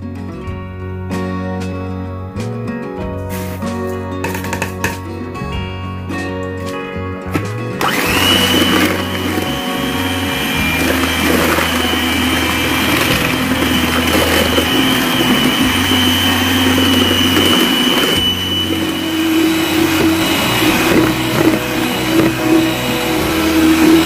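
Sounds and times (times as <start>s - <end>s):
beaters whipping in glass bowl: 7.8s - 24.0s
electric hand mixer running: 7.8s - 24.0s.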